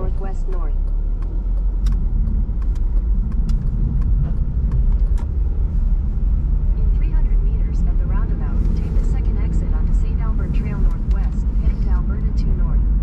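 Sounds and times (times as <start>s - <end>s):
sharp clicks and rattles: 0.0s - 7.3s
road and engine rumble: 0.0s - 13.0s.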